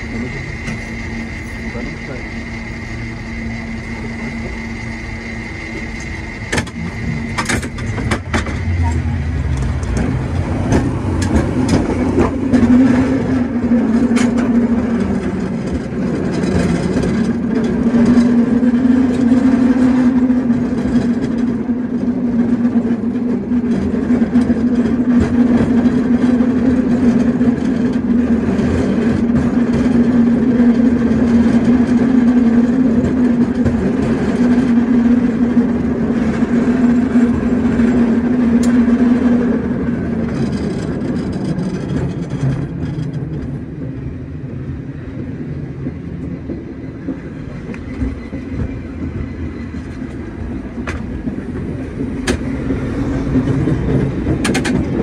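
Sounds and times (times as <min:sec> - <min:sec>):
cable car droning hum: 0:00.0 - 0:55.0
steel wheels rumbling on rails: 0:00.0 - 0:55.0
sharp clicks and clanks: 0:06.0 - 0:12.8, 0:53.4 - 0:55.0.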